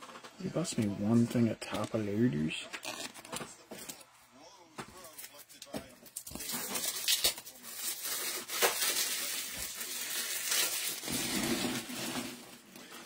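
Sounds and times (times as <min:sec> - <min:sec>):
plastic crinkling and rustling: 0:05.0 - 0:13.0.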